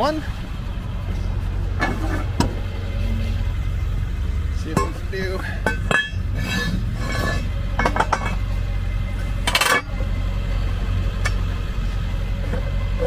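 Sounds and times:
metal clinks and scrapes: 0:04.6 - 0:10.2.

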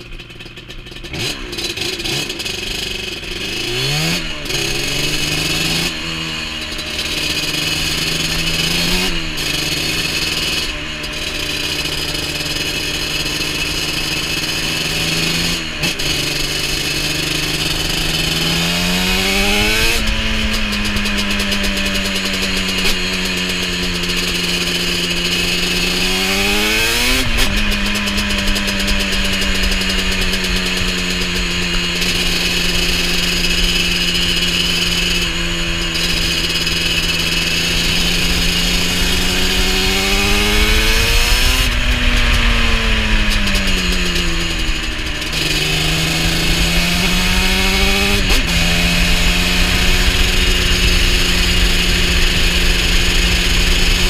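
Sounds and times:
two-stroke engine running: 0:00.0 - 0:54.0
wind hiss: 0:37.0 - 0:54.0.

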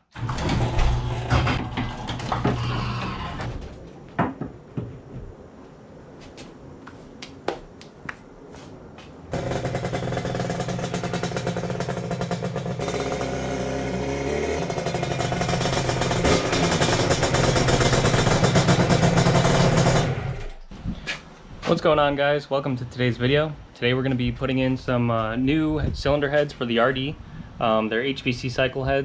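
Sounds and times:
motorcycle engine revving: 0:00.0 - 0:03.2, 0:09.3 - 0:20.6.

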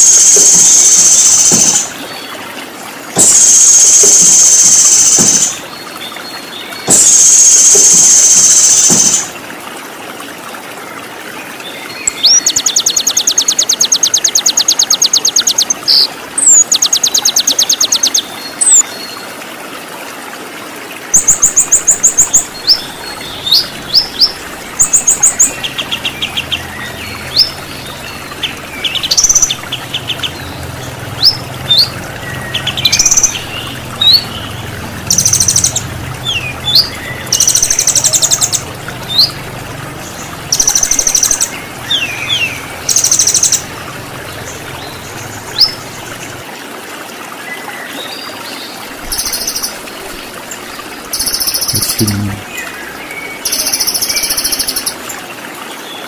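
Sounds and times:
loud buzzy bird bursts: 0:00.0 - 0:01.9, 0:03.2 - 0:05.6, 0:06.8 - 0:09.3
waterfall rushing: 0:00.0 - 0:12.4, 0:18.6 - 0:56.0
songbirds chirping and singing: 0:21.2 - 0:46.4, 0:47.6 - 0:55.1.

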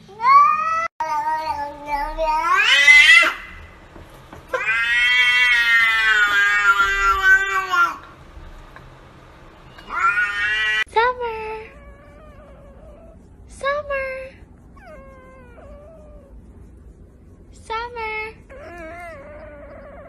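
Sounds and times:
cat yowling: 0:00.1 - 0:03.8, 0:04.5 - 0:08.1, 0:09.7 - 0:10.9, 0:14.8 - 0:16.5.

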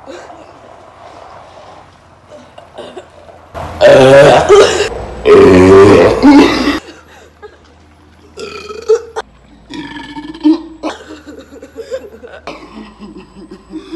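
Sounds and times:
loud deep burp: 0:03.8 - 0:06.8, 0:08.4 - 0:11.0.

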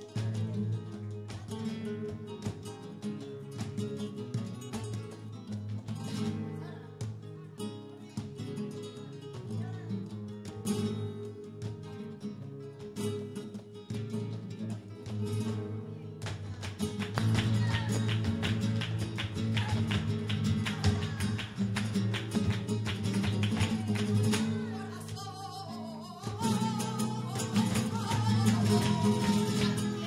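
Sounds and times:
flamenco guitar strumming: 0:00.0 - 0:30.0
person singing: 0:23.7 - 0:30.0.

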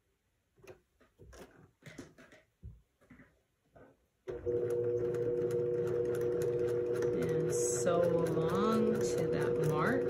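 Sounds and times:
sewing machine running: 0:04.3 - 0:10.0.

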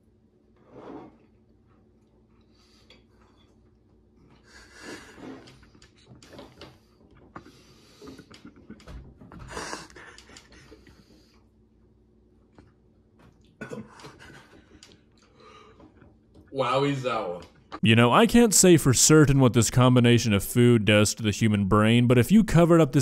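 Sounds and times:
man breathing hard and wheezing: 0:09.4 - 0:11.5.

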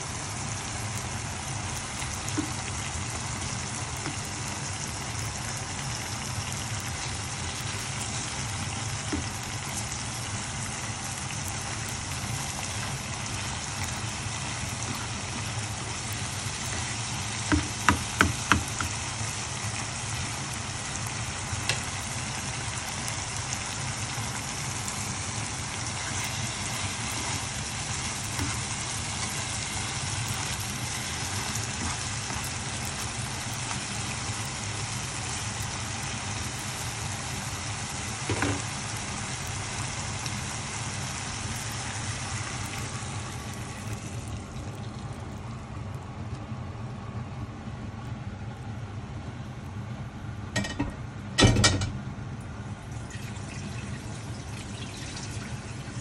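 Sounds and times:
vegetables sizzling in a pan: 0:00.0 - 0:46.6, 0:52.6 - 0:56.0
spatula tapping a pan: 0:17.4 - 0:19.0.

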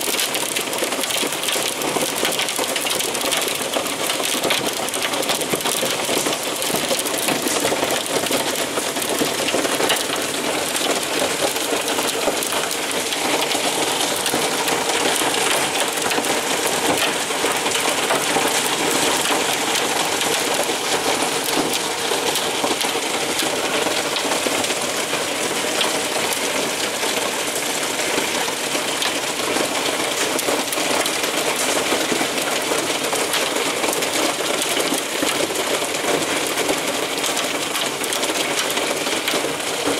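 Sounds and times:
hail and heavy rain pelting: 0:00.0 - 0:39.9.

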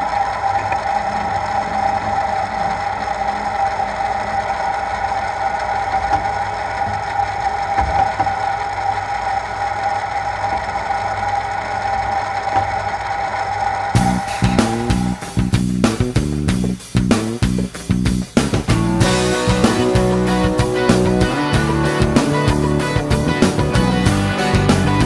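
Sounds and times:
end mill cutting metal: 0:00.0 - 0:16.4
milling machine gear whine: 0:00.0 - 0:16.6, 0:18.6 - 0:25.0.

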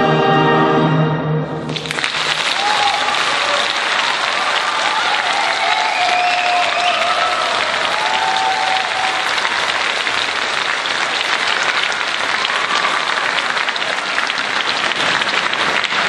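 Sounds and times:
audience applauding: 0:01.7 - 0:16.0.

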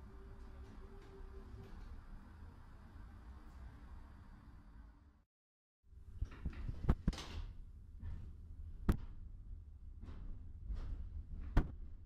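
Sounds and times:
tram rumble: 0:00.0 - 0:05.1.

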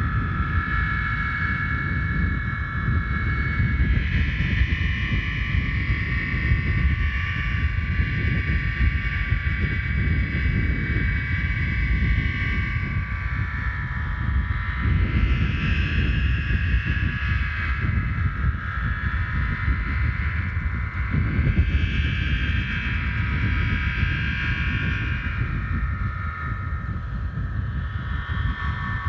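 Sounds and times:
wind rumble on microphone: 0:00.0 - 0:29.0.

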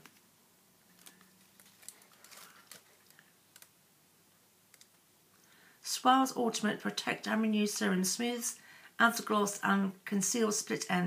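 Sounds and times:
faint small clicks: 0:04.7 - 0:05.5.

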